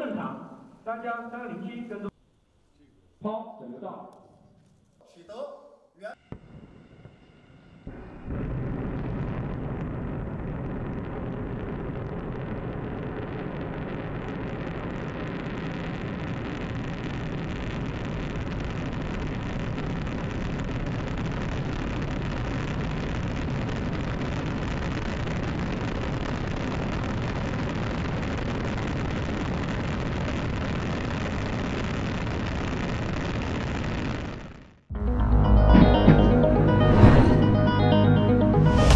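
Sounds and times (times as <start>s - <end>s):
rocket engines rumbling: 6.3s - 22.9s.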